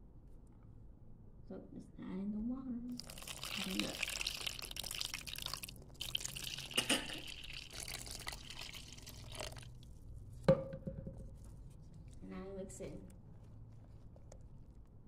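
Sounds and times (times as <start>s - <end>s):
water pouring into a bowl: 2.9s - 9.8s.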